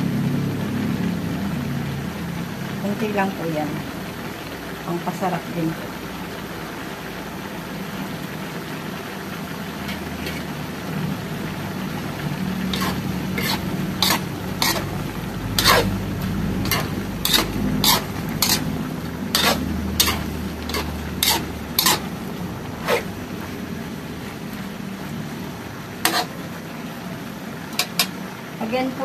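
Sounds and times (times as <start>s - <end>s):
metal spatula scraping a wok: 9.9s - 10.6s, 12.7s - 23.2s, 26.0s - 26.4s, 27.8s - 28.2s.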